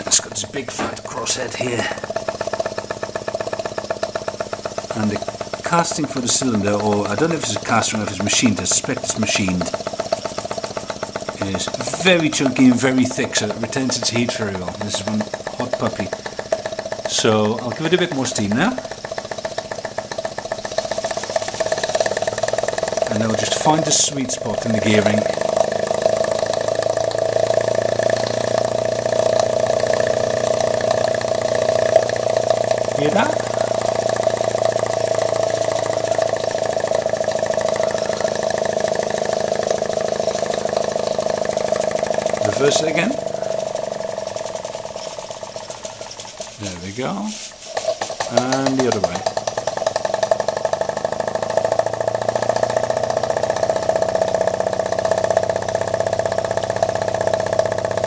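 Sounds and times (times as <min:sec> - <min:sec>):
model steam engine running fast: 0:00.0 - 0:58.0.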